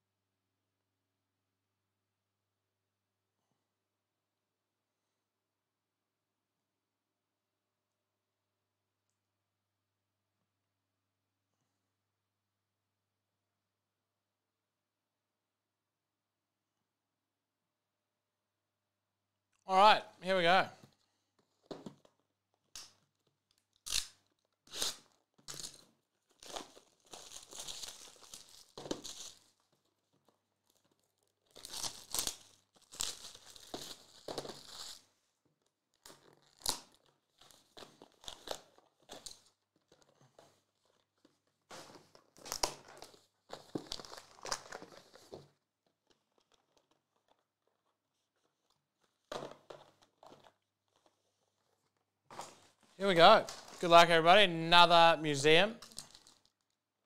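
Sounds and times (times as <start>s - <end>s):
plastic shrink wrap tearing: 22.8s - 35.1s, 35.7s - 52.8s, 55.8s - 56.8s.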